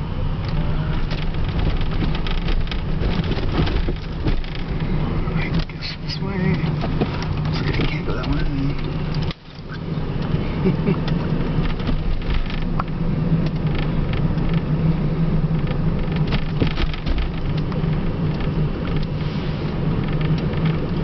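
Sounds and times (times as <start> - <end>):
low hum: 0.0 - 21.0
road and tyre rumble: 0.0 - 21.0.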